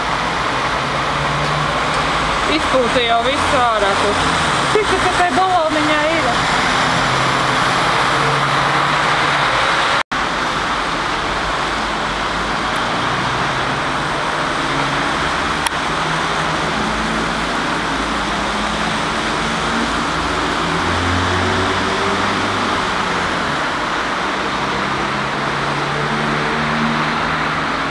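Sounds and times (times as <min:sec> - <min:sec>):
cars and trolleybus driving past: 0:00.0 - 0:27.9.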